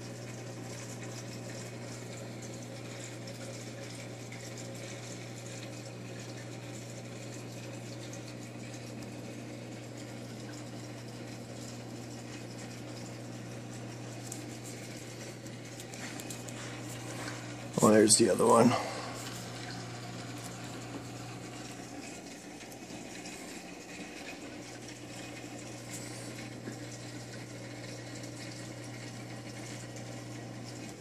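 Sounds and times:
water pumps humming: 0.0 - 31.0
water hissing and bubbling: 13.8 - 22.2, 25.5 - 27.1.

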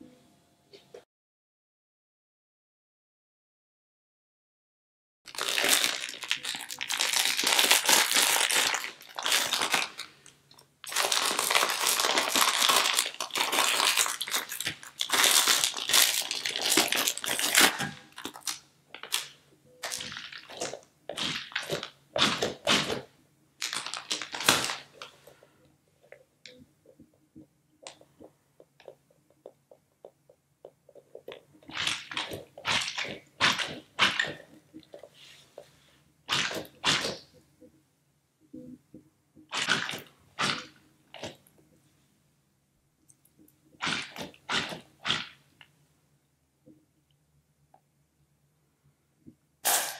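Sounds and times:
plastic packaging crinkling: 5.3 - 25.5, 30.9 - 35.0
stress ball squishing: 10.9 - 37.7, 38.9 - 41.5, 43.4 - 45.7.

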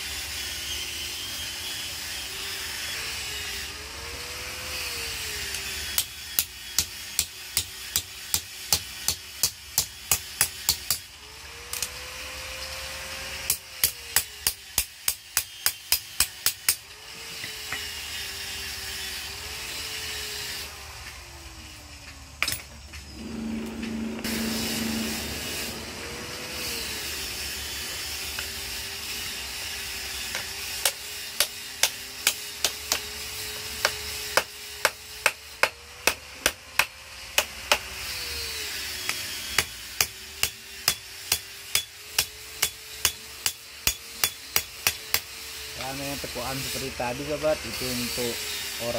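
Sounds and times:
hammer striking hot metal on anvil: 6.0 - 11.1, 13.5 - 16.8, 39.6 - 45.3.

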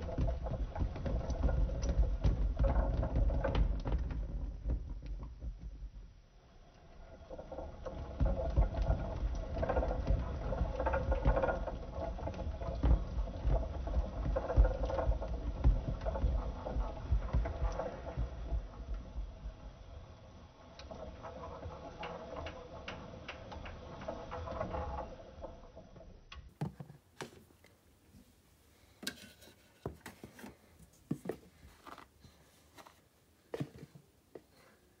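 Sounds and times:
water beads rattling in plastic drum: 0.0 - 5.9, 6.9 - 19.5
plastic knocks and clicks: 26.4 - 27.4.

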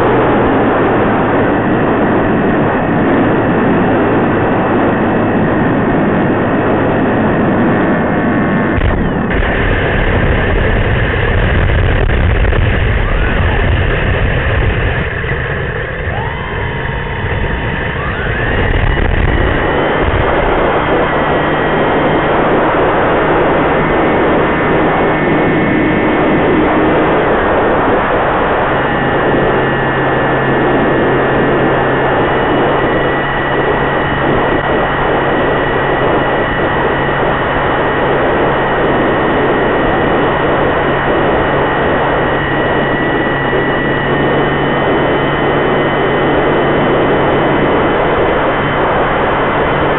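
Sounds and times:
propeller motor whining: 0.0 - 49.9
steady rushing noise: 0.0 - 49.9.

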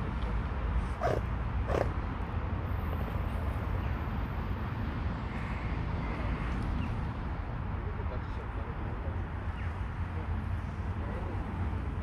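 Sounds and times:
dog barking: 1.0 - 1.9.

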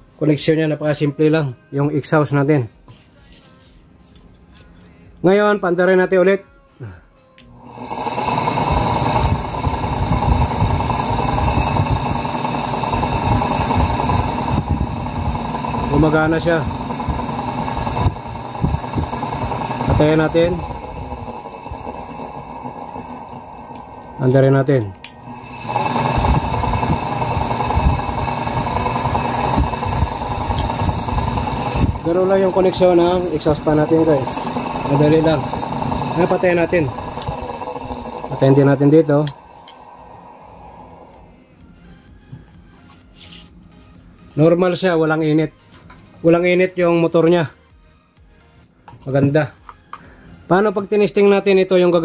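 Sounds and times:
exhaust fan running: 7.4 - 47.9
rush of air: 39.1 - 41.4.

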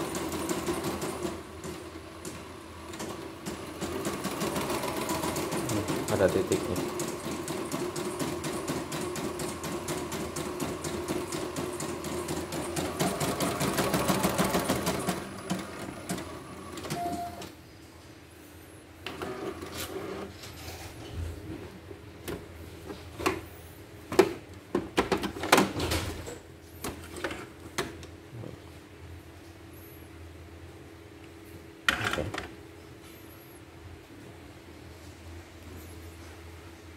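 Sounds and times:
embroidery machine stitching: 0.0 - 17.0.

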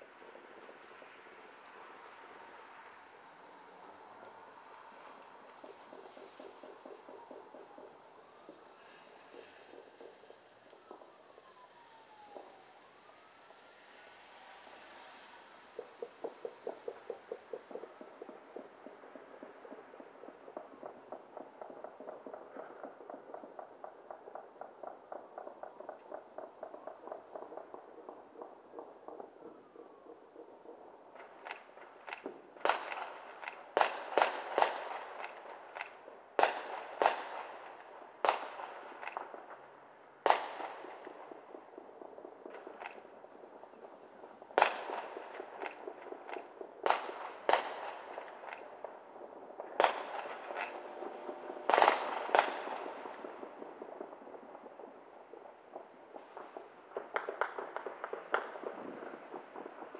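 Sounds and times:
small firework crackles: 0.0 - 59.9.

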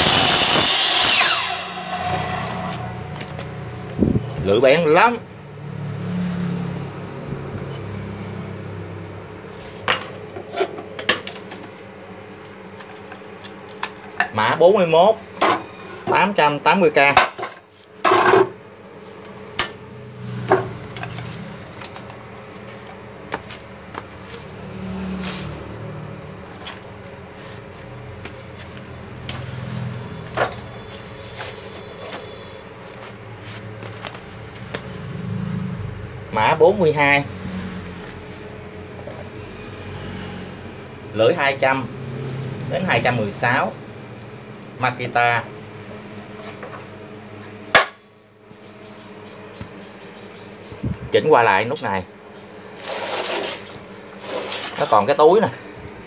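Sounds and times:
saw motor coasting down: 0.0 - 3.8.

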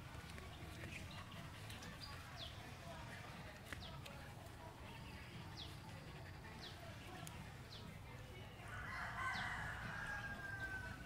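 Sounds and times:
rooster crowing: 8.8 - 11.0.

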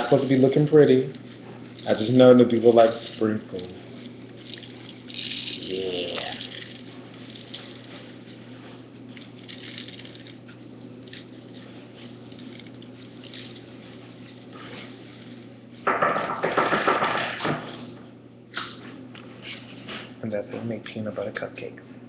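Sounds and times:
sprinkles pattering on tray: 0.0 - 17.2.

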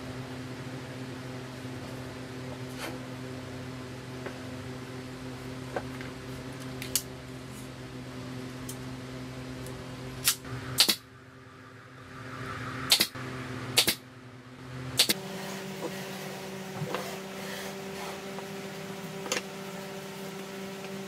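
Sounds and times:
steady low hum: 0.0 - 21.0
nail gun shots: 10.2 - 11.0, 12.9 - 13.2, 13.8 - 14.0, 15.0 - 15.2.

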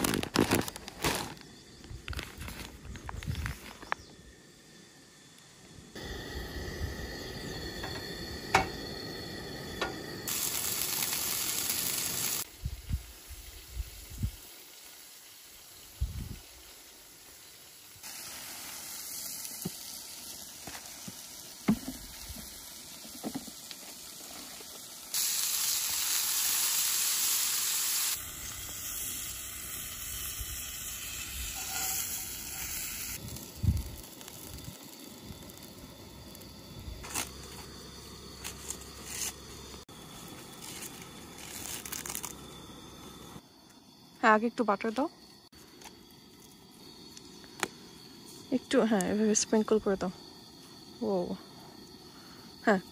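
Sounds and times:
food sizzling in a frying pan: 6.0 - 40.0.

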